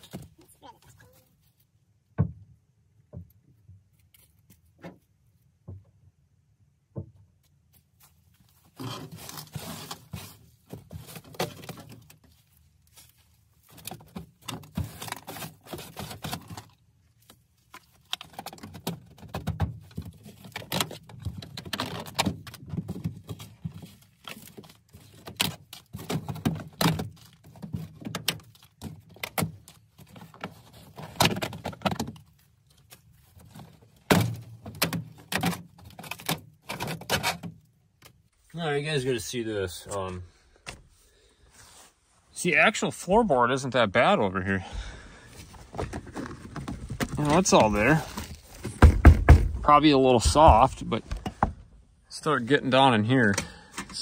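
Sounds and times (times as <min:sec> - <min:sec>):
rustling and scraping debris: 0:07.4 - 0:38.6, 0:44.7 - 0:54.0.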